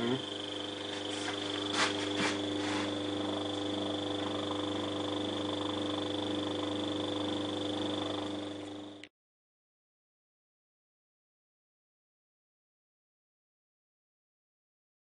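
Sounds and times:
compressor humming with high whine: 0.0 - 9.1.

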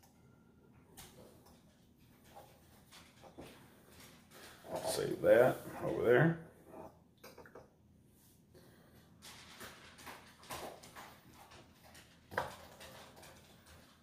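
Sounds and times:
soft clicks and rustles: 0.8 - 5.2.

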